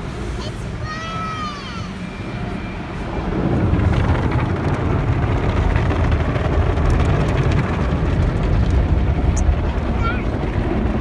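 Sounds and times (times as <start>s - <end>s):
car wash rumble: 0.0s - 11.0s.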